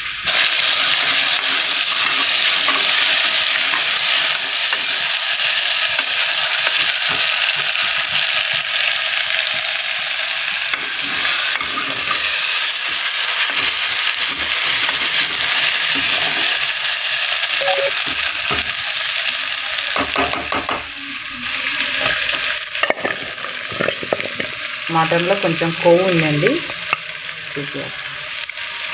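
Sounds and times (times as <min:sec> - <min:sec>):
meat sizzling in oil: 0:00.0 - 0:28.9
steel ladle scraping pot: 0:10.8 - 0:12.4.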